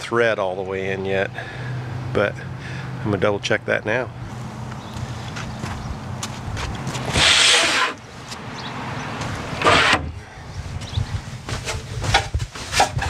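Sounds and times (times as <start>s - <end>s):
hatch scraping along runners: 4.4s - 8.4s.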